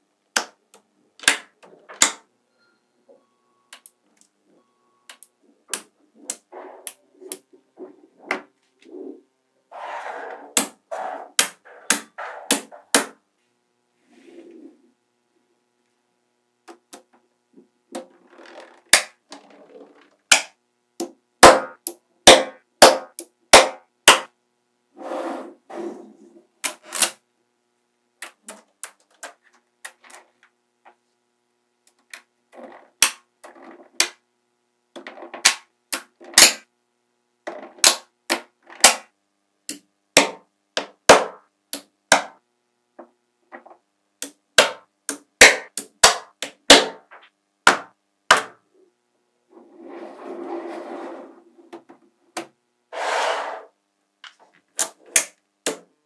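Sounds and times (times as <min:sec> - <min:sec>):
magnetic balls snapping together: 0:00.3 - 0:02.2, 0:18.0 - 0:24.3.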